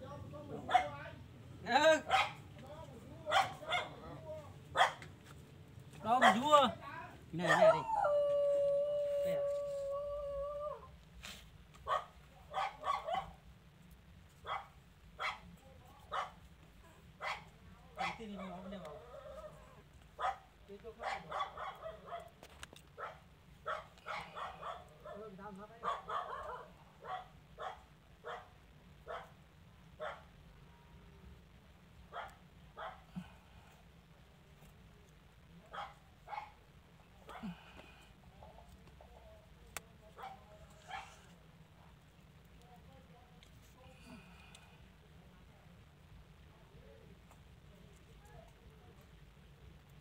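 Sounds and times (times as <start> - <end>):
dog barking: 0.6 - 1.0, 2.0 - 2.4, 3.3 - 5.0, 6.2 - 6.5, 7.4 - 7.8, 11.8 - 13.4, 14.4 - 15.5, 16.1 - 16.4, 17.2 - 18.7, 20.2 - 22.4, 23.0 - 29.4, 30.0 - 30.3, 32.1 - 33.2, 35.7 - 36.6, 40.2 - 41.3
dog barking sharply: 2.0 - 2.4, 4.8 - 5.0.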